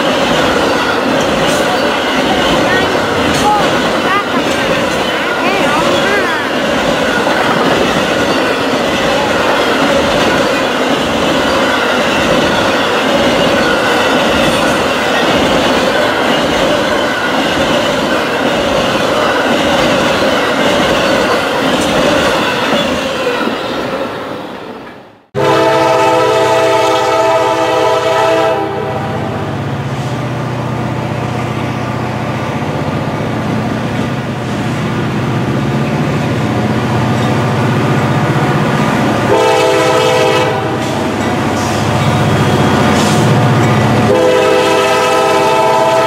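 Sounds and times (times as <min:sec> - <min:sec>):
locomotive engine humming: 0:00.0 - 0:46.0
train wheels on rails: 0:00.0 - 0:46.0
locomotive air horn: 0:25.4 - 0:29.5, 0:39.3 - 0:41.1, 0:44.1 - 0:46.0.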